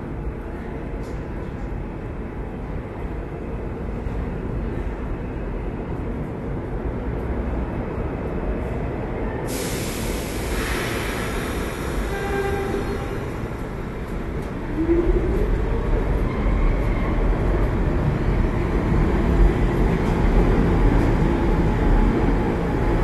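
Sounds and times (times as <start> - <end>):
subway train rumbling: 0.0 - 23.0
loud rushing hiss: 9.5 - 13.6.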